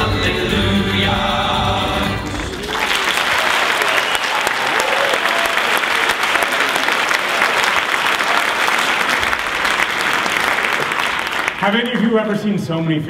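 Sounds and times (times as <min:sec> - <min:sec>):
audience applauding: 0:02.2 - 0:12.4.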